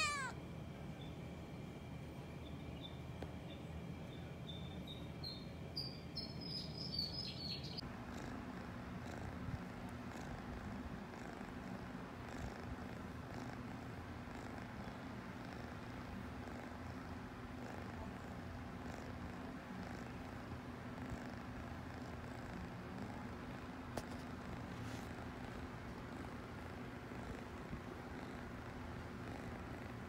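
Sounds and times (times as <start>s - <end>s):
cat purring: 7.8s - 30.0s.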